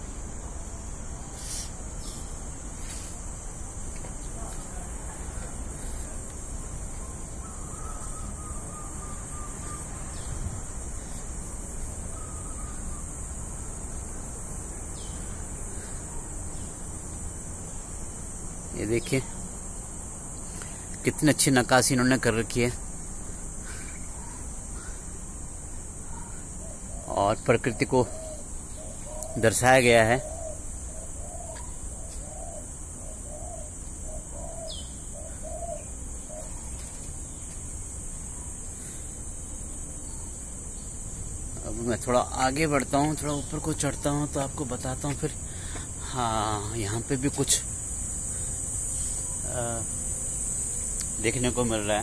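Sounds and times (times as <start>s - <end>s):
high-pitched insect drone: 0.0s - 52.0s
dove cooing: 4.3s - 10.3s, 26.0s - 37.1s.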